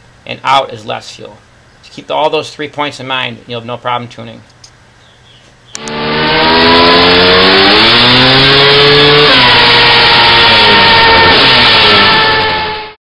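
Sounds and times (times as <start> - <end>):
two-stroke dirt bike revving: 5.8 - 13.0.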